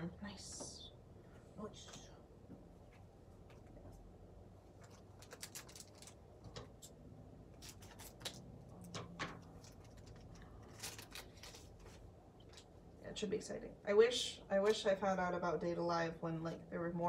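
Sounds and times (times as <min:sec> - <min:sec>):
wrapper crinkling: 0:04.7 - 0:06.6, 0:07.5 - 0:08.7, 0:09.4 - 0:12.7.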